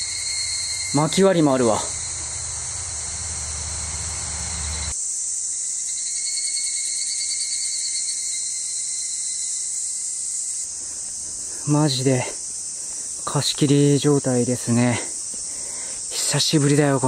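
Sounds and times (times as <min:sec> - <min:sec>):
insects singing: 0:00.0 - 0:17.0
low rumble: 0:01.6 - 0:04.9.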